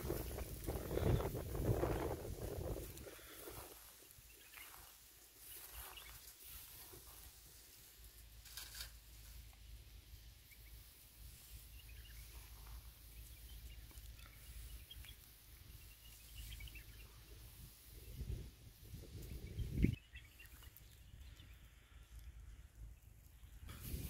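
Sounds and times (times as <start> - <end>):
low wind rumble: 0.0 - 3.9, 17.0 - 20.1
small bird chirps: 0.0 - 7.8, 10.4 - 23.8
brief rustle: 8.4 - 9.4.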